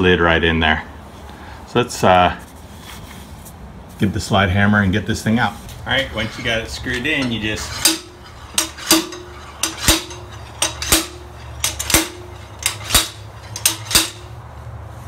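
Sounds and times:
slide hammer metal clanking: 5.7 - 14.4.

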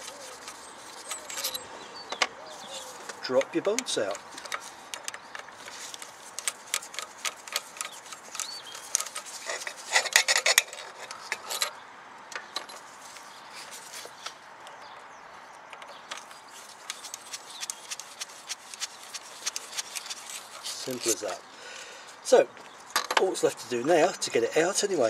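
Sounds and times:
metallic clinks of bolts: 1.1 - 1.6.

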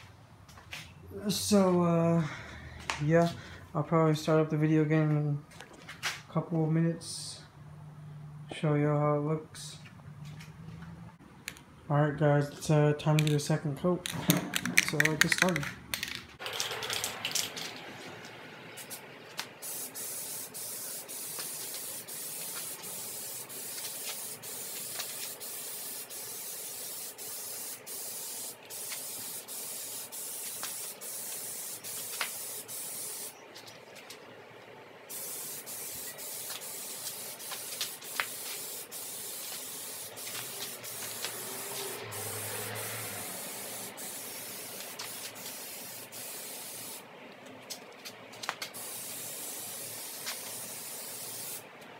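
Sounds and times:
aerosol can spraying: 19.6 - 33.3, 35.1 - 47.0, 48.6 - 51.6.

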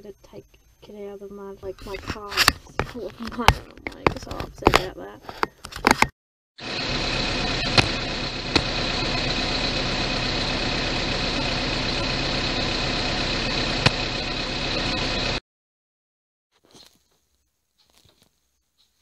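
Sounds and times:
vehicle engine idling: 6.6 - 15.4.

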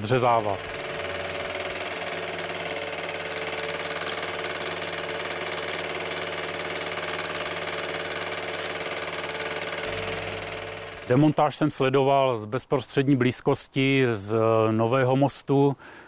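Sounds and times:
diesel engine humming: 0.0 - 11.4.

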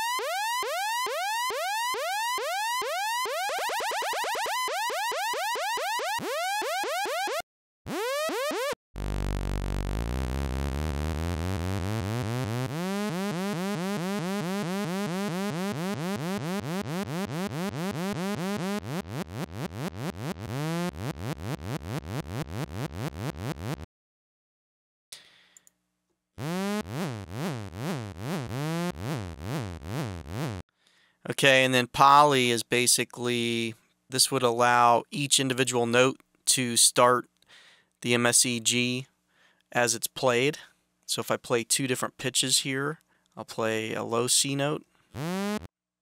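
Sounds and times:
synthesizer tone with pitch swoops: 0.0 - 23.8, 45.2 - 45.7.

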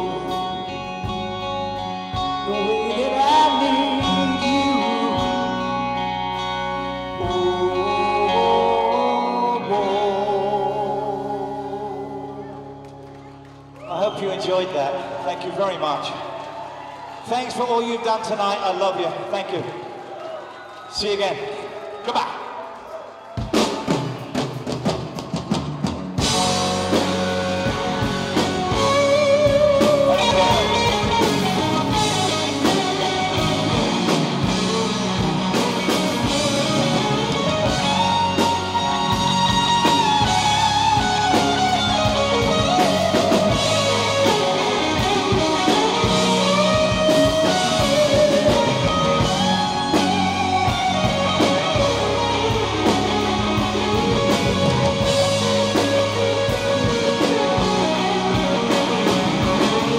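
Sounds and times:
wavering lead guitar: 0.0 - 15.1, 25.8 - 59.9
live rock band playing: 0.0 - 19.5, 23.4 - 59.9.

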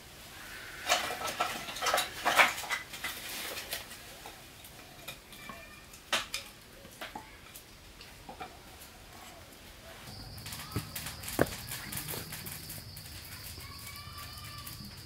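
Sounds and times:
hard objects clinking and knocking: 10.2 - 15.0.

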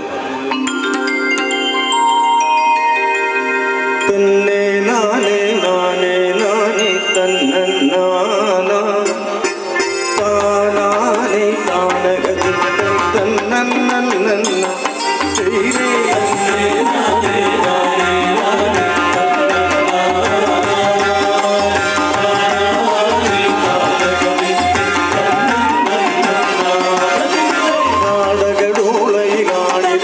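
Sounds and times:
wavering melody over drums: 0.0 - 30.0.

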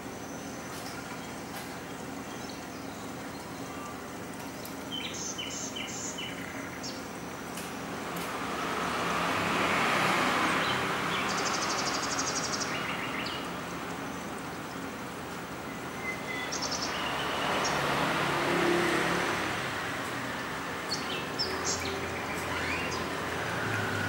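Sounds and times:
road traffic hiss: 0.0 - 24.0
bird chirps: 15.7 - 17.8, 20.9 - 23.2.

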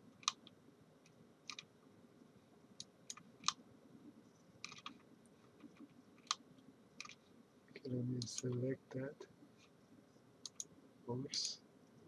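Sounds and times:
computer mouse clicking: 0.2 - 1.7, 2.8 - 3.6, 4.6 - 5.0, 5.6 - 6.4, 7.0 - 7.2, 10.4 - 10.7.

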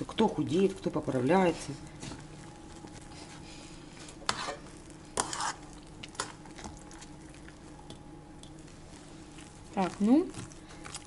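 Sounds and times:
spoon stirring cream in bowl: 4.1 - 7.1.

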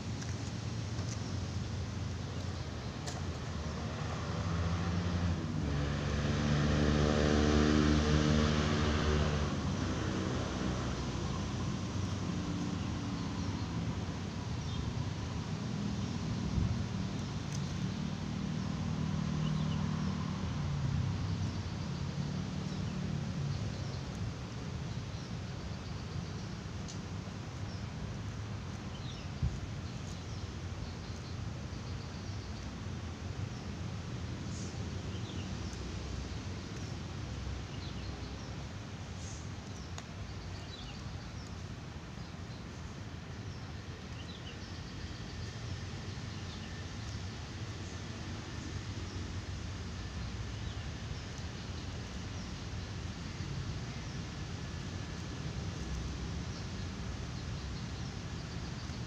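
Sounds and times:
distant traffic hum: 0.0 - 59.0
small birds chirping: 16.0 - 59.0.

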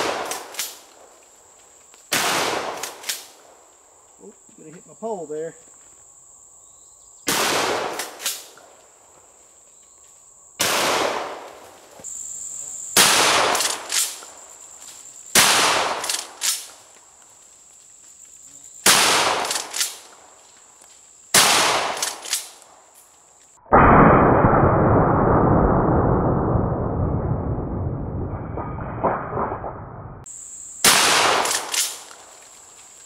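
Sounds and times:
shotgun shots with echo: 0.0 - 0.8, 2.1 - 3.4, 7.3 - 8.5, 10.6 - 11.5, 13.0 - 14.2, 15.3 - 16.7, 18.8 - 20.0, 21.4 - 22.5, 30.8 - 32.0.

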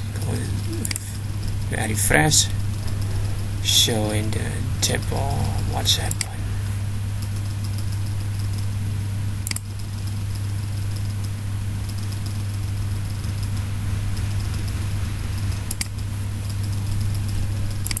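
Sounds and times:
low electrical hum with hiss: 0.0 - 18.0
mouse clicks: 9.4 - 9.7.

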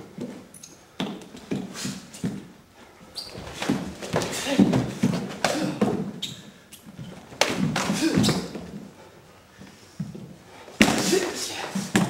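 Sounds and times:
arms striking and clashing: 7.3 - 8.6, 10.8 - 12.0.

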